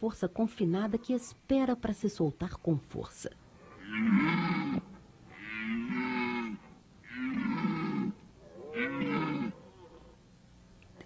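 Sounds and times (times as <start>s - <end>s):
deer stag roaring: 3.6s - 10.2s.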